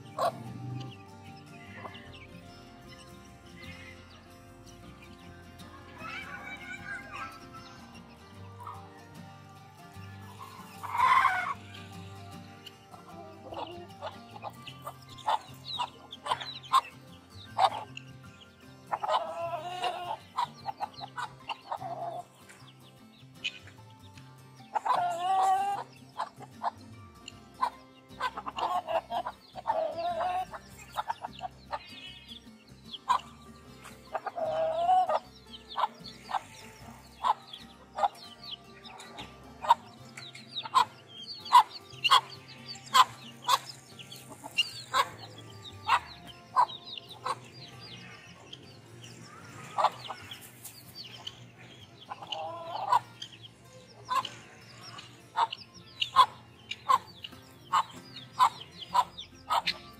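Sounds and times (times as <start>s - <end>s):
hen clucking call: 0.0s - 2.5s, 10.2s - 18.0s, 18.9s - 22.4s, 24.7s - 26.8s, 27.6s - 32.4s, 33.0s - 48.6s, 49.3s - 51.3s, 52.1s - 53.3s, 54.1s - 59.9s
chicks peeping: 0.0s - 59.9s.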